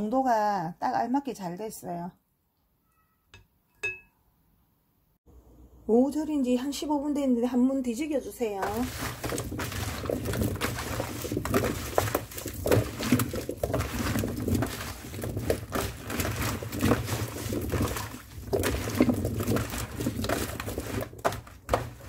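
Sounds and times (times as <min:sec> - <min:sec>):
radish cubes tossed in metal bowl: 0:07.9 - 0:22.0.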